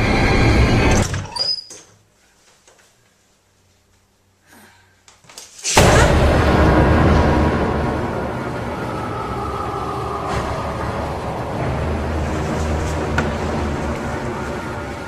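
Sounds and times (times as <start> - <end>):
rumbling horror film score: 0.0 - 1.1, 5.8 - 15.0
door squeaking open: 0.0 - 2.0.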